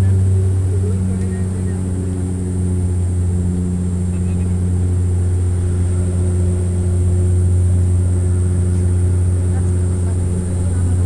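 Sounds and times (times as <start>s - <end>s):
airliner engine drone in cabin: 0.0s - 11.0s
high whine: 0.0s - 11.0s.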